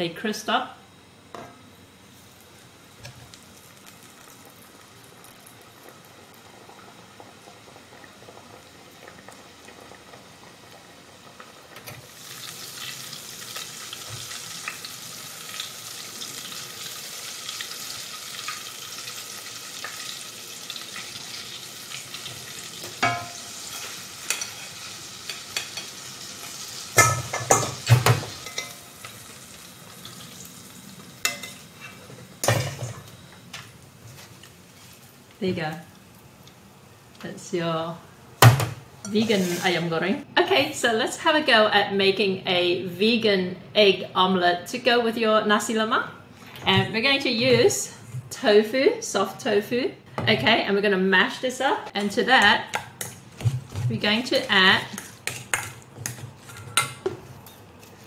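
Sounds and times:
food deep-frying in hot oil: 0:02.0 - 0:37.1.

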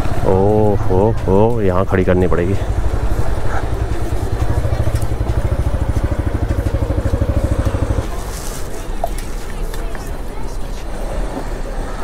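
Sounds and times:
motorcycle engine idling: 0:00.1 - 0:08.2.

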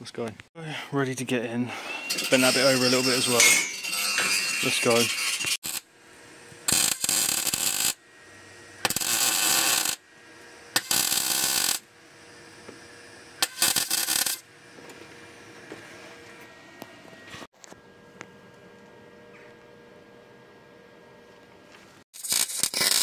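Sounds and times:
electric arc welding: 0:02.1 - 0:05.9, 0:06.6 - 0:08.0, 0:08.8 - 0:10.0, 0:10.7 - 0:11.9, 0:13.4 - 0:14.5, 0:22.2 - 0:23.0.

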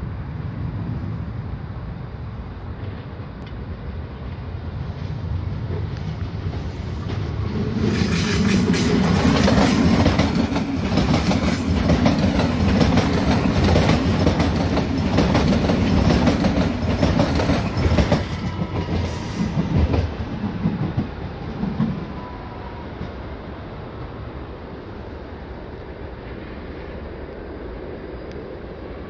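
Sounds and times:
train wheels clattering over rail joints: 0:05.7 - 0:21.2.

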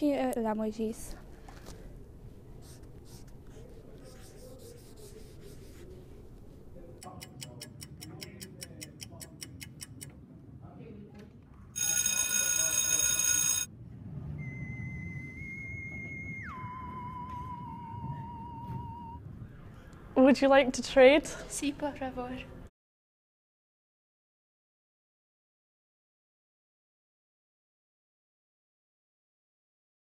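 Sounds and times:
clock ticking quickly: 0:07.0 - 0:10.1
loud electric bell ringing: 0:11.8 - 0:13.7.

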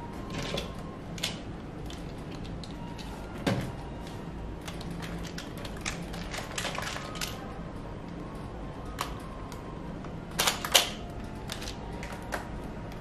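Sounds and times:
plastic toy parts clicking: 0:04.6 - 0:07.4, 0:10.3 - 0:12.4.

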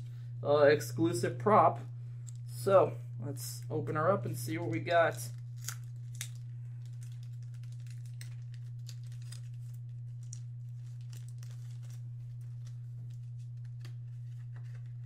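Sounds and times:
steady low hum: 0:00.0 - 0:15.0
packaging crinkling and tearing: 0:05.1 - 0:15.0.

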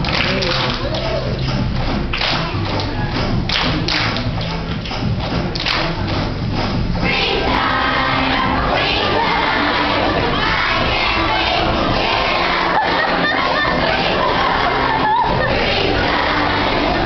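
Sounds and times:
backing music with thumping beat: 0:00.0 - 0:17.0
children shouting and cheering: 0:07.0 - 0:17.0
children's choir singing: 0:07.0 - 0:17.0.

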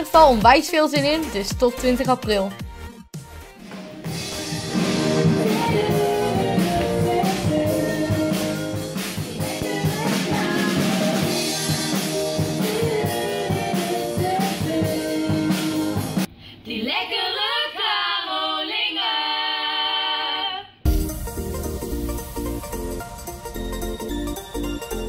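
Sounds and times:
pop song with drum beat: 0:00.0 - 0:16.3
women singing unaccompanied: 0:04.4 - 0:20.7.

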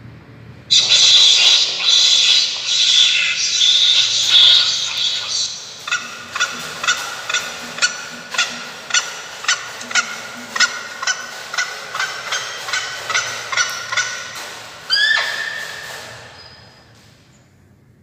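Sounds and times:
electronic bird calls from speaker: 0:00.7 - 0:08.6.

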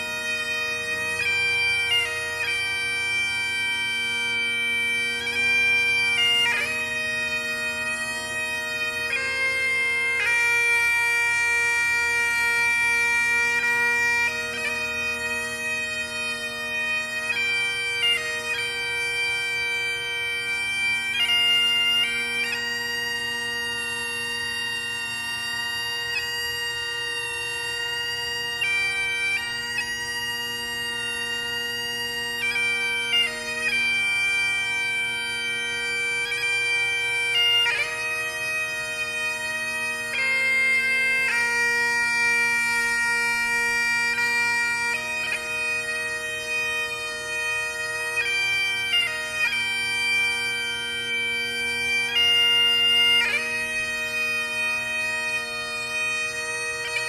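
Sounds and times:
bagpipes playing slow tune: 0:00.0 - 0:57.0.

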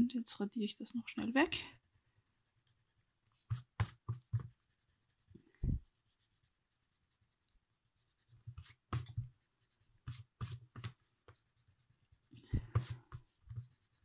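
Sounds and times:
eraser rubbing on paper: 0:03.4 - 0:05.0, 0:08.1 - 0:14.0.

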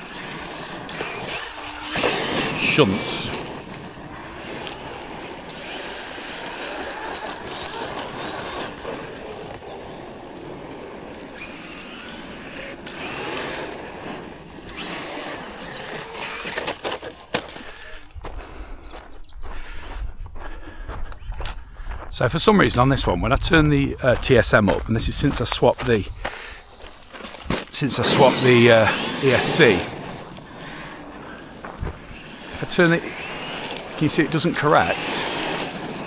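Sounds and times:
distant toy car motor whining: 0:00.0 - 0:18.6, 0:26.2 - 0:36.0
wind rumble on microphone: 0:18.1 - 0:26.3.

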